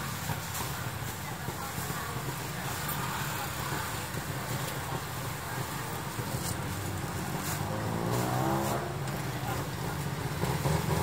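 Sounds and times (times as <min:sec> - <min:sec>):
street traffic hum: 0:00.0 - 0:11.0
vehicle engine speeding up: 0:06.7 - 0:09.2.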